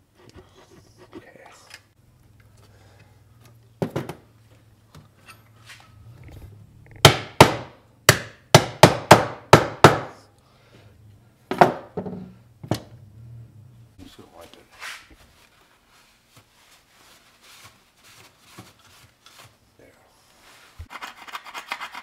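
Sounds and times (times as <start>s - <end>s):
hammer knocking on wood: 7.0s - 10.2s, 11.5s - 12.8s.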